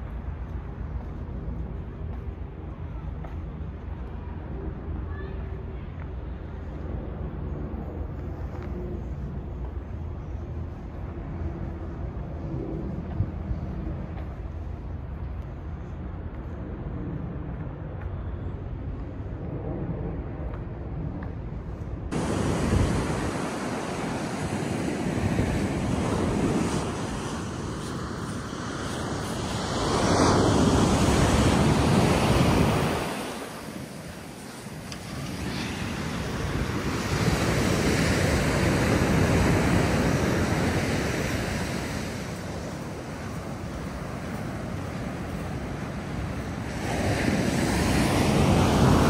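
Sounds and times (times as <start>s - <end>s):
strong wind buffeting microphone: 0.0s - 49.0s
ocean surf: 22.1s - 49.0s.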